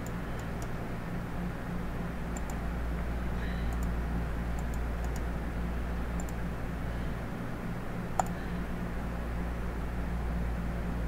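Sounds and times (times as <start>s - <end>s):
computer mouse clicks: 0.0s - 0.8s, 2.4s - 2.6s, 3.7s - 5.3s, 6.2s - 6.4s, 8.2s - 8.4s
electrical hum and hiss: 0.0s - 11.0s.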